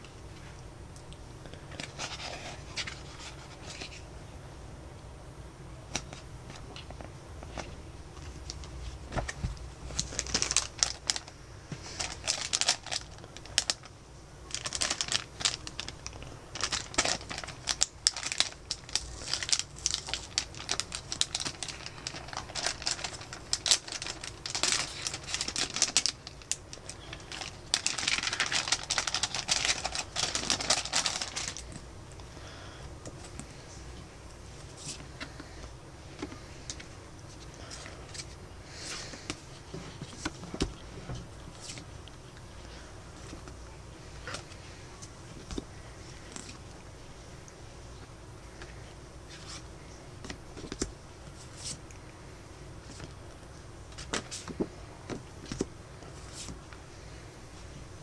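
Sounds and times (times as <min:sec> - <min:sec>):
plastic packaging crinkling: 0:05.9 - 0:32.2.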